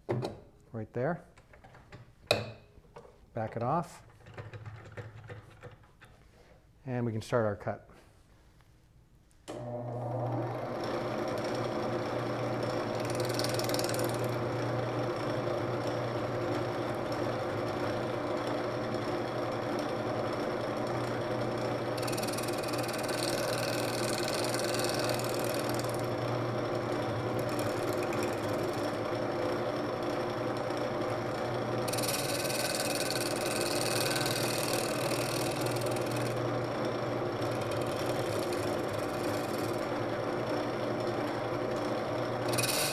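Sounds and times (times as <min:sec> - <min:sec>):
wood lathe motor humming: 0:09.5 - 0:42.9.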